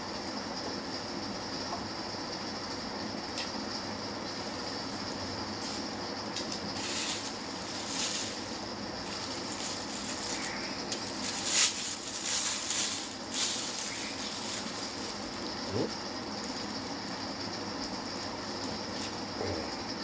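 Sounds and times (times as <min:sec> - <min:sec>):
steady background hiss: 0:00.0 - 0:20.0
plastic bag rustling: 0:06.8 - 0:15.6.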